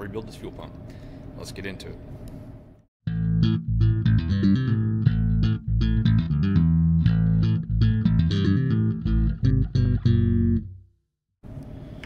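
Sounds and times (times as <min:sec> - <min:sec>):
bass guitar riff: 0:03.1 - 0:10.9.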